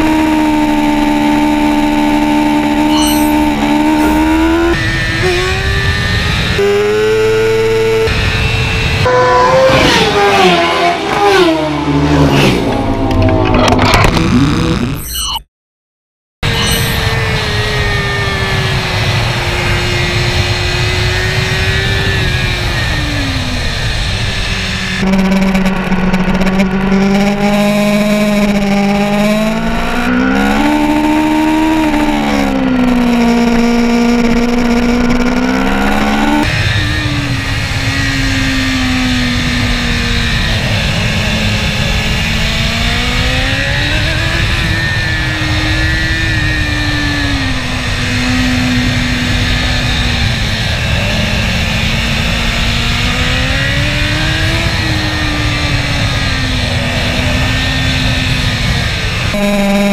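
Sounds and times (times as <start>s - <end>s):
motorcycle engine revving: 0.0s - 15.2s, 16.4s - 59.9s
low wind rumble: 1.7s - 14.3s, 29.5s - 59.4s.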